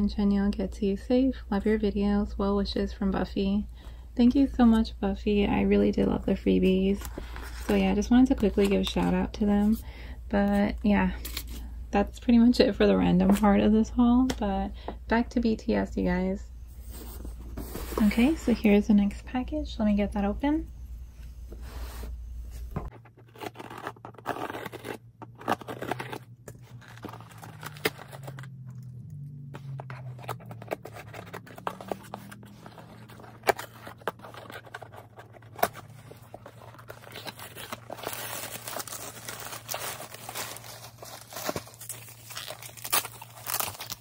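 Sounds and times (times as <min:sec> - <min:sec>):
packaging tearing and crinkling: 0:23.0 - 0:28.8, 0:29.8 - 0:44.0.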